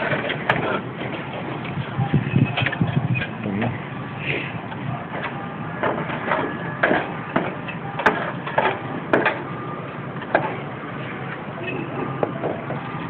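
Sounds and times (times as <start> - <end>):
knocks and scrapes on tile roof: 0.0 - 1.6.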